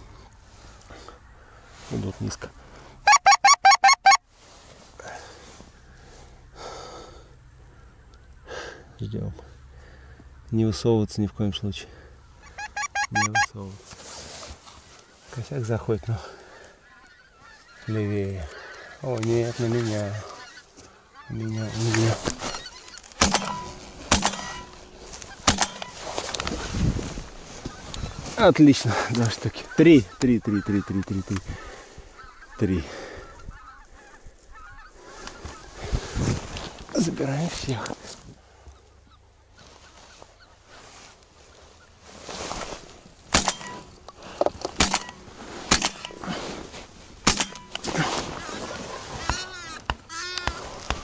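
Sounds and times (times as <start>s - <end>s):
geese honking: 3.0s - 4.2s, 12.0s - 13.7s, 15.8s - 26.7s, 27.5s - 36.0s, 47.4s - 51.0s
shotgun shots: 23.2s - 24.7s, 25.4s - 25.9s, 43.3s - 43.8s, 44.8s - 46.1s, 47.2s - 47.8s.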